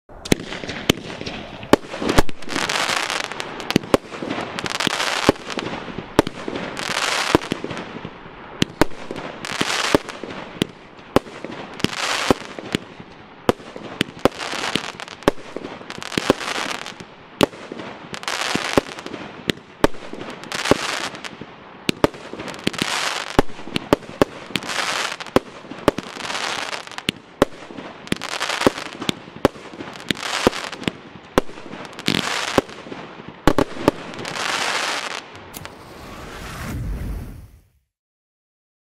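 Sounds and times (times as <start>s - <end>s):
firework shots banging: 0.1s - 12.9s
firework crackling: 0.1s - 37.8s.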